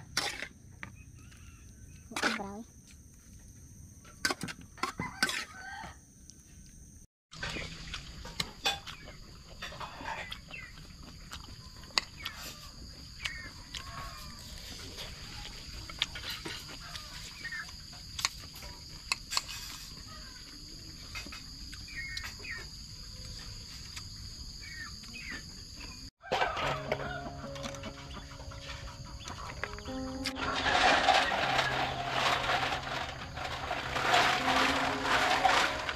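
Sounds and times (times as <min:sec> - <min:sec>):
chickens clucking: 0:26.3 - 0:35.7
background music: 0:26.4 - 0:35.9.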